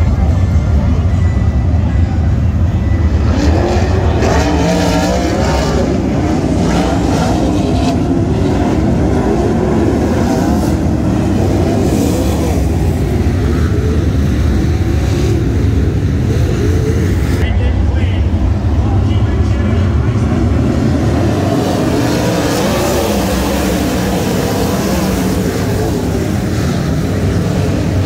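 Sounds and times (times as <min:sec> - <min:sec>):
racing car engines revving: 0:00.0 - 0:28.0.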